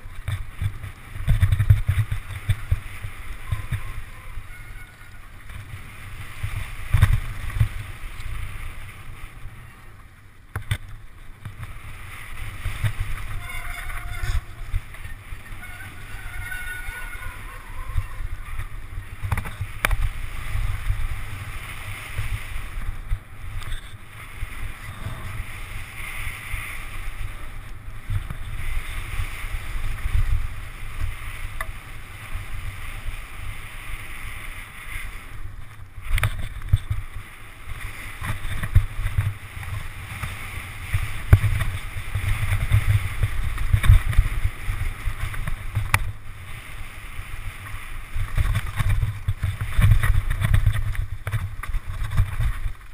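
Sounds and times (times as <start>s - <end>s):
bike knocks and rattles: 0.0s - 3.9s
tyres rolling on dirt trail: 0.0s - 52.9s
wind buffeting microphone: 0.0s - 52.9s.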